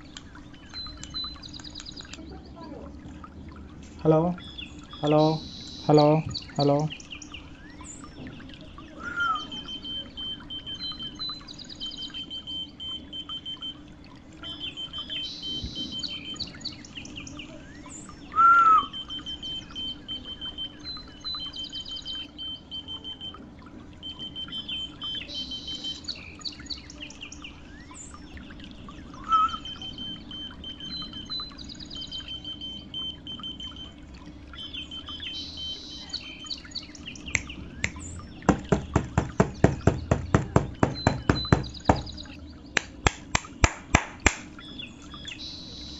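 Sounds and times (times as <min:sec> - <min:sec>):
birds chirping: 0:00.0 - 0:45.9
sharp whistles: 0:09.0 - 0:11.2, 0:18.3 - 0:20.4, 0:29.2 - 0:31.4.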